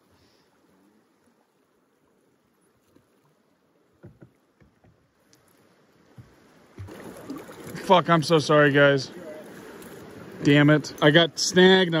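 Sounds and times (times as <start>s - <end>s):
soft knocks: 4.0s - 5.0s, 6.1s - 7.0s.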